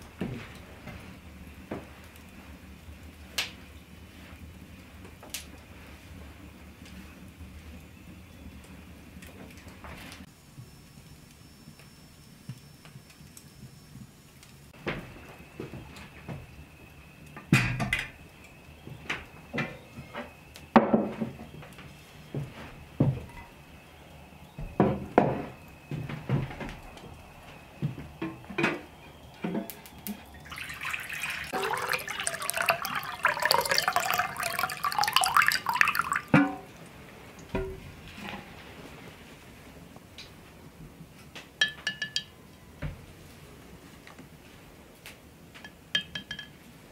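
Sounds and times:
tin vessels clinking: 29.5s - 36.7s
water pouring into a bowl: 30.0s - 36.7s.

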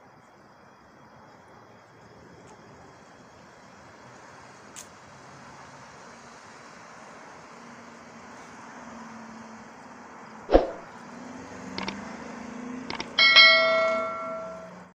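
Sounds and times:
distant traffic hum: 0.6s - 14.9s
mouse-click sound effects: 10.5s - 10.8s, 11.8s - 12.0s, 12.9s - 13.2s
sharp thump sound effect: 10.5s - 10.9s
notification bell ding: 13.2s - 14.9s.

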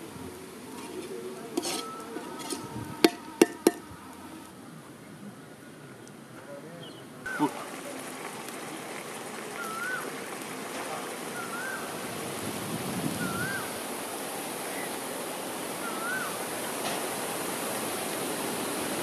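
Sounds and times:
steady rushing outdoor noise: 0.0s - 19.0s
bird whistling short note: 13.2s - 13.6s.

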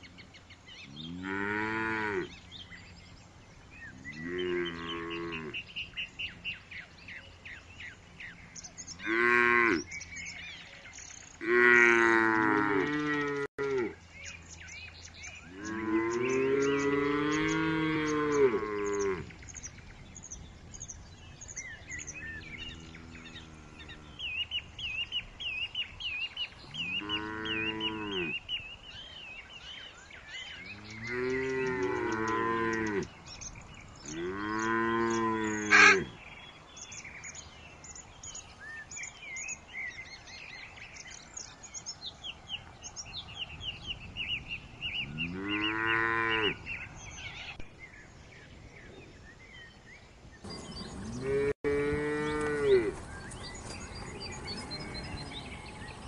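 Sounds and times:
birds chirping: 0.0s - 56.0s
cattle mooing: 30.9s - 33.1s, 34.1s - 36.2s, 51.0s - 53.0s, 54.1s - 55.8s.

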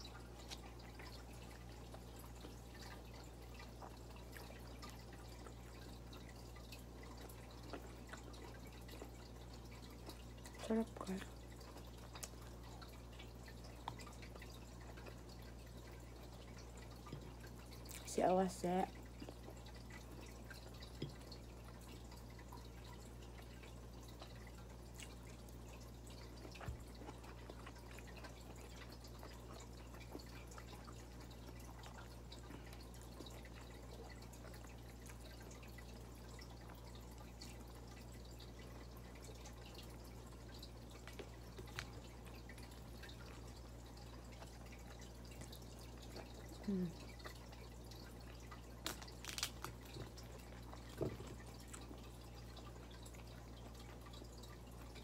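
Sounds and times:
chewing and lip smacks: 0.0s - 18.1s, 18.9s - 55.0s.

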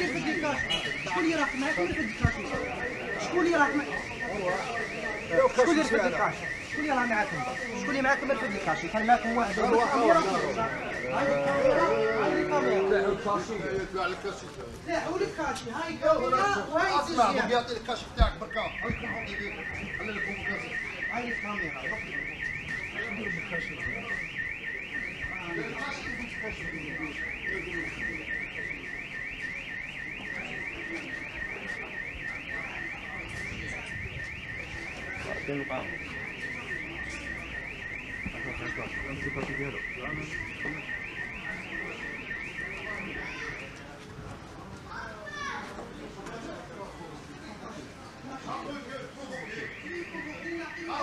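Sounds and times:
faint voices: 0.0s - 51.0s
electronic alarm sweeping tone: 49.4s - 51.0s.

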